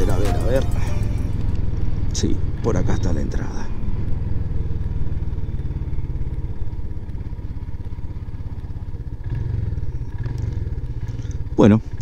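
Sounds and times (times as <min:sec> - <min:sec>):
motorcycle engine at low revs: 0:00.9 - 0:12.0.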